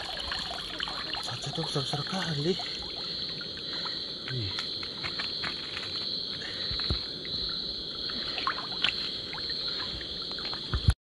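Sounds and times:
crickets chirping: 0.0 - 11.0
water sloshing and splashing: 0.0 - 11.0.

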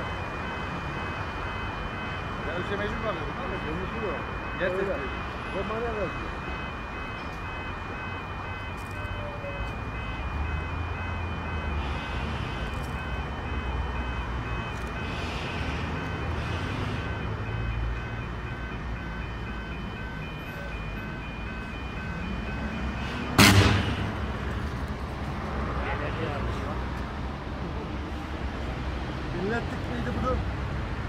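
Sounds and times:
faint steady tones: 0.0 - 23.4
two-pitch electronic warning tone: 0.0 - 24.2.

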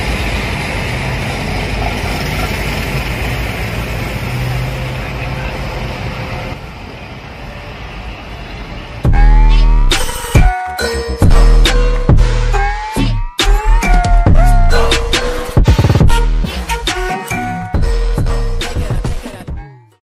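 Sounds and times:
road and wind rush: 0.0 - 10.6
coach engine drone: 0.0 - 19.4
loud electronic music: 9.0 - 20.0.

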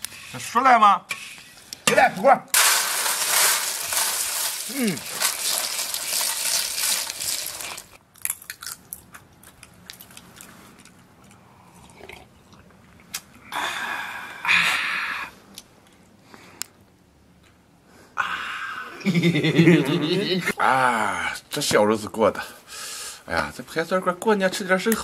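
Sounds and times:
seeds rattling onto metal tray: 2.6 - 8.0
small clicks and crunches: 3.2 - 11.4.

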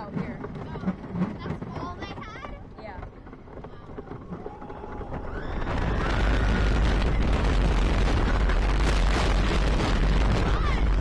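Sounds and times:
roller coaster wheels rumbling: 0.0 - 11.0
wind buffeting microphone: 0.0 - 11.0.

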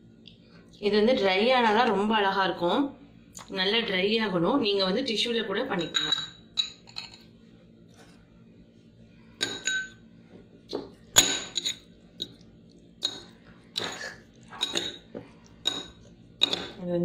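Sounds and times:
spoon clinking against plate: 5.8 - 7.2.

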